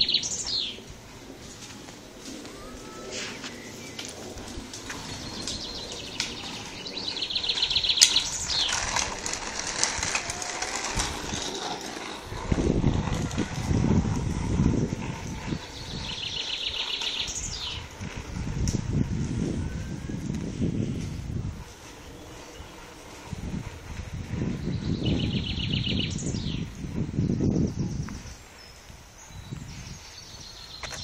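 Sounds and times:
low microphone rumble: 0.0s - 31.0s
songbird trilling: 5.2s - 8.7s.

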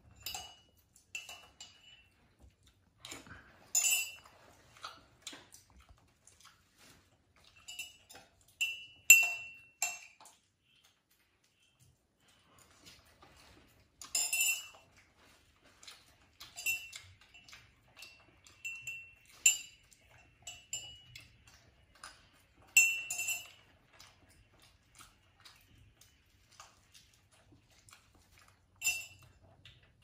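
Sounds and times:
spoon clinking on tableware: 0.1s - 2.2s, 7.6s - 10.2s, 22.7s - 23.6s.

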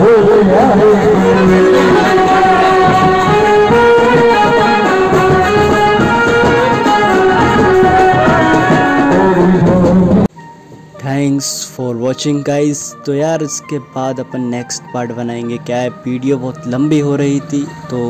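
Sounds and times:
brass band playing melody: 0.0s - 10.3s.

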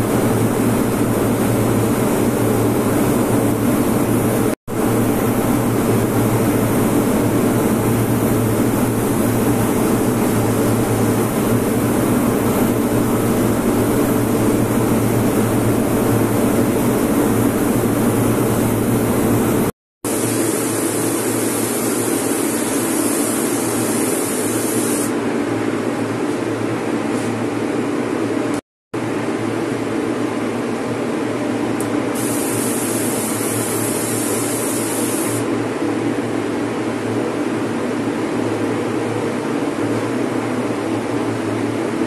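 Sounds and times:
spray gun hissing: 20.1s - 25.1s, 32.2s - 35.5s.

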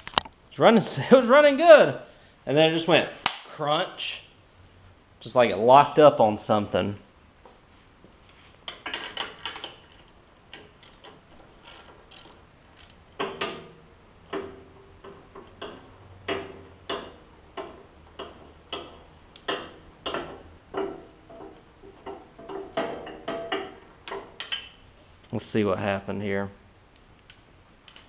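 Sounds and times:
socket ratchet clicking: 10.6s - 13.0s.

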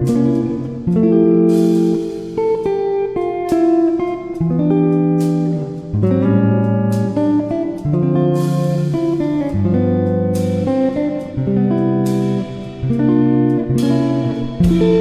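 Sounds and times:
guitar over bass line: 0.0s - 15.0s
sharp percussive hits: 14.5s - 15.0s.

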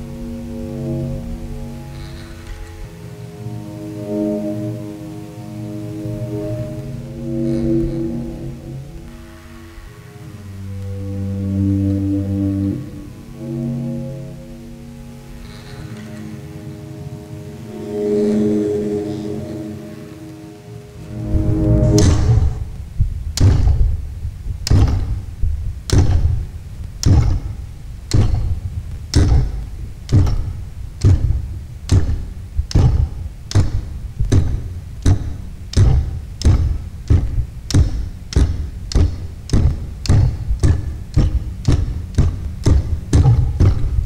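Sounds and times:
sewing machines thudding rhythmically: 25.9s - 44.0s.

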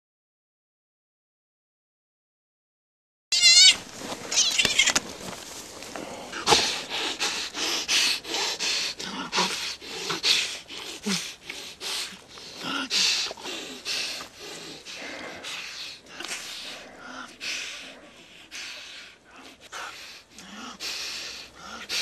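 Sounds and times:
heavy panting and snorting: 4.9s - 22.0s.

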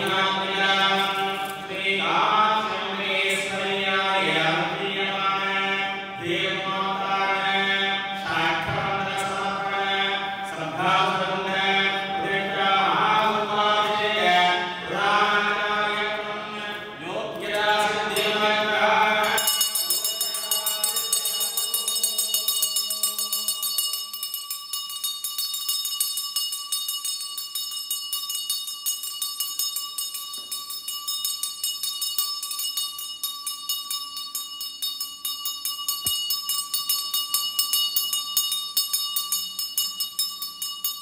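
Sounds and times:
chanting voices: 0.0s - 24.1s
hand bell ringing: 17.8s - 41.0s.

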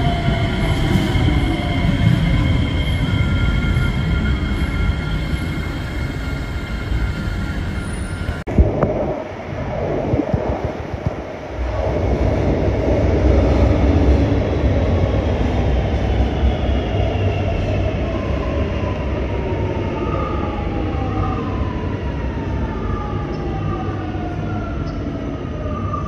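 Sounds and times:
train wheels rumbling on rail: 0.0s - 18.9s.

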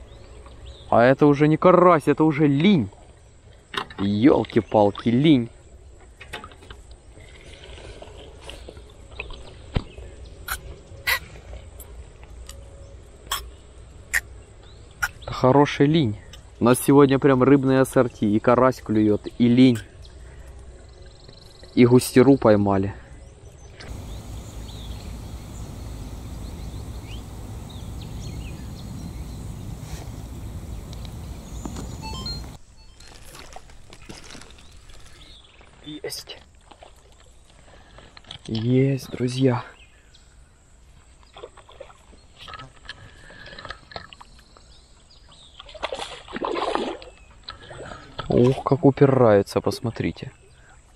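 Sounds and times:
quiet outdoor background: 0.0s - 45.9s
bird chirps and calls: 23.8s - 33.2s
low rumble: 23.9s - 32.6s
handling clicks and taps: 30.0s - 32.6s.

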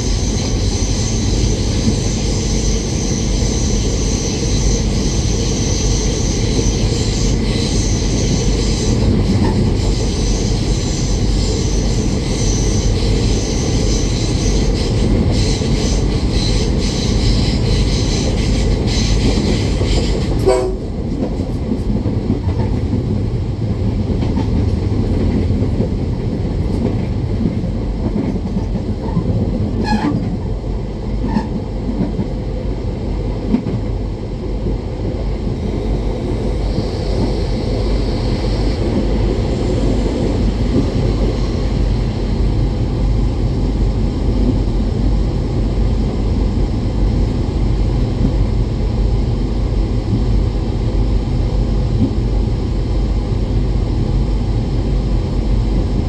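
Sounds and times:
diesel train rumbling on rails: 0.0s - 56.0s
short train horn calls: 20.4s - 20.9s.

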